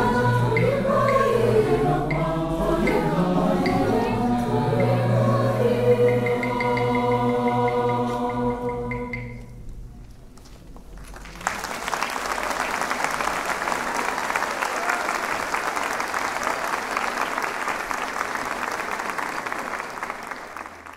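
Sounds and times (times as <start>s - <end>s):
audience applauding: 10.4s - 20.9s.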